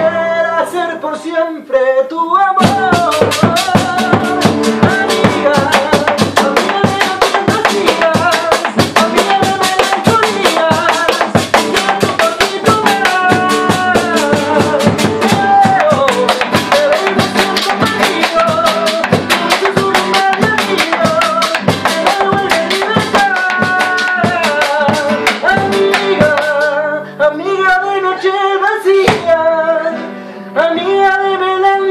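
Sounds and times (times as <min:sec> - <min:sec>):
acoustic guitar strummed: 0:00.0 - 0:01.2, 0:02.6 - 0:31.9
drum beaten with sticks: 0:02.6 - 0:26.8, 0:29.0 - 0:29.4.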